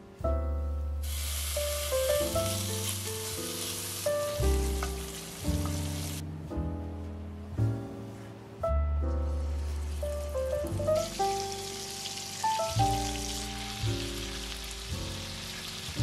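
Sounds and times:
background music: 0.0s - 16.0s
bacon sizzling: 1.0s - 6.2s, 9.5s - 16.0s.

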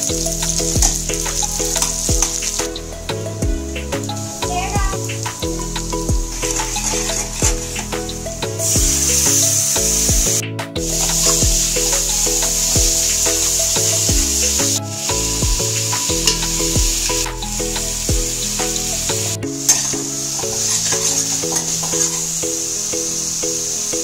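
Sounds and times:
food sizzling in hot oil: 0.0s - 2.8s, 4.1s - 10.3s, 10.9s - 23.9s
background music with beat: 0.0s - 24.0s
metal spatula scraping pan: 6.4s - 8.1s.

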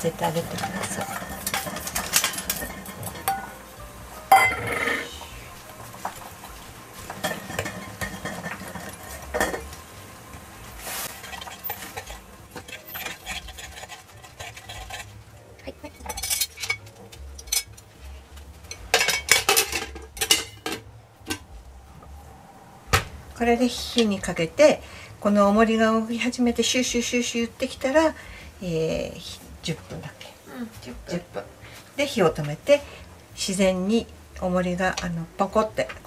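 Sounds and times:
spoon scraping and clinking in pot: 0.4s - 3.6s, 11.0s - 15.1s, 15.9s - 17.8s.

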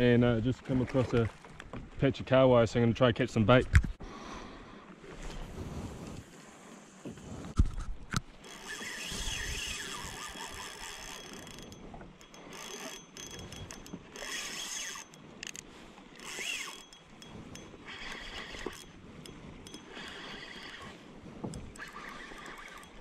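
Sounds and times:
spinning reel gears whirring: 8.4s - 23.0s.

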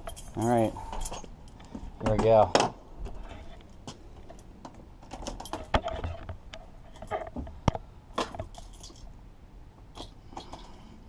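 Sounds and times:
ignition keys handled: 0.0s - 2.5s, 3.1s - 6.2s, 8.2s - 9.2s, 9.9s - 11.0s.

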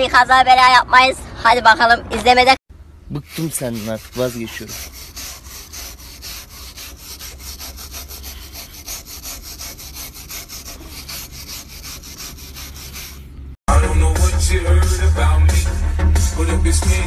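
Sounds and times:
scrub brush scrubbing rubber tyre: 3.1s - 13.4s.

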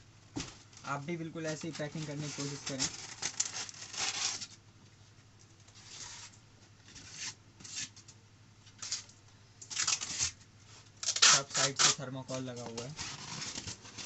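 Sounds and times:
foam sheets scraping in cardboard box: 12.8s - 14.0s.

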